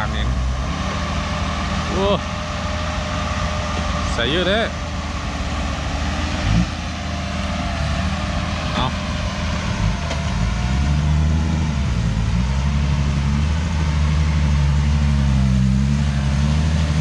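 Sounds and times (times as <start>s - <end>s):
diesel truck engine working hard: 0.0s - 17.0s.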